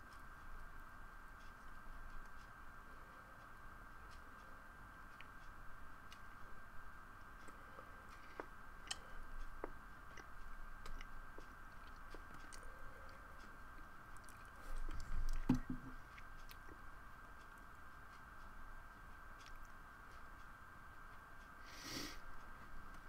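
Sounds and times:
faint steady whine: 0.0s - 23.0s
faint clicks and taps: 7.2s - 18.6s.

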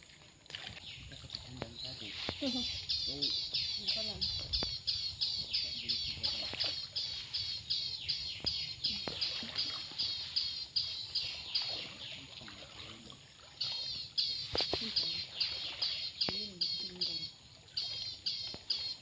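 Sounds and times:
faint water wash: 5.5s - 19.0s.

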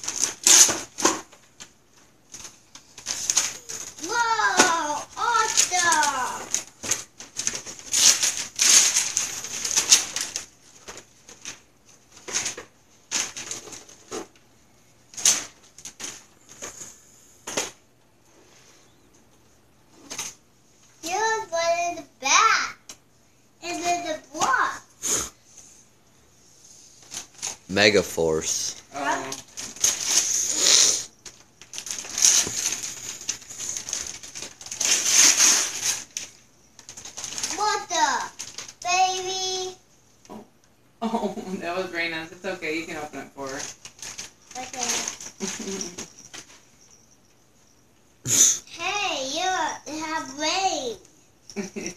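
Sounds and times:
wrapping paper tearing: 0.0s - 1.3s, 2.3s - 14.2s, 27.0s - 39.8s, 43.4s - 46.4s
paper rustling: 0.0s - 14.4s, 27.0s - 39.6s, 43.4s - 47.0s.

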